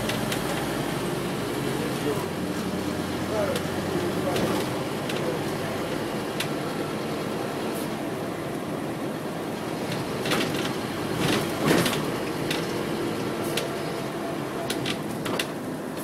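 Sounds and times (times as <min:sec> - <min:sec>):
bus engine and road noise: 0:00.0 - 0:16.0
bus body knocks and rattles: 0:03.4 - 0:05.5, 0:09.8 - 0:13.8, 0:14.6 - 0:15.6.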